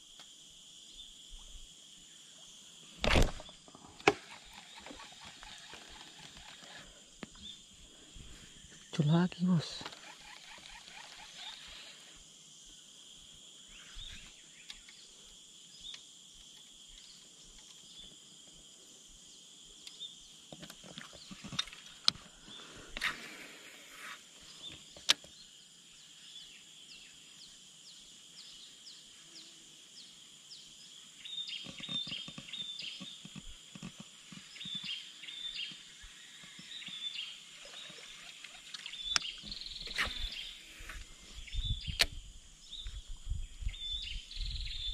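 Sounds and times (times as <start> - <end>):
high-pitched insect drone: 3.8 - 16.9
short bird chirps: 36.4 - 43.0.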